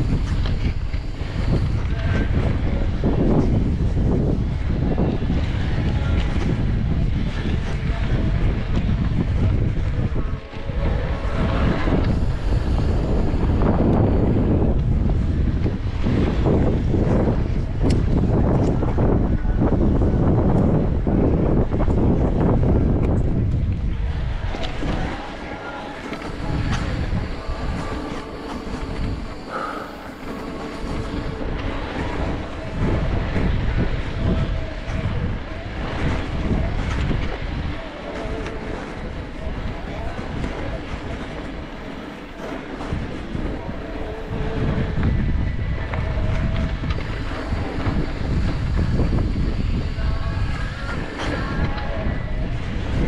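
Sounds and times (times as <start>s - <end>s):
low rumble: 0.0s - 53.0s
wind buffeting microphone: 0.0s - 53.0s.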